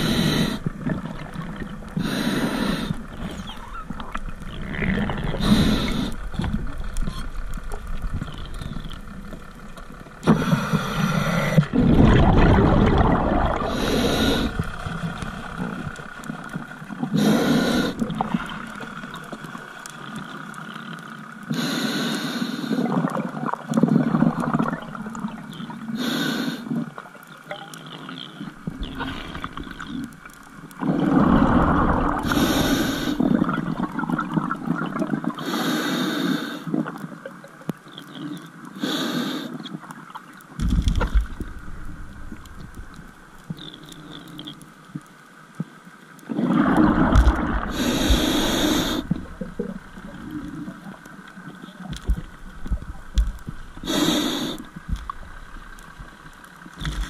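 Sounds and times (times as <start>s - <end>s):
diver breathing through regulator: 0.0s - 0.7s, 2.0s - 3.2s, 4.9s - 6.3s, 10.2s - 15.9s, 17.1s - 18.5s, 21.5s - 22.9s, 25.9s - 26.8s, 30.8s - 33.6s, 35.4s - 36.7s, 38.8s - 39.6s, 46.8s - 50.6s, 53.8s - 54.7s.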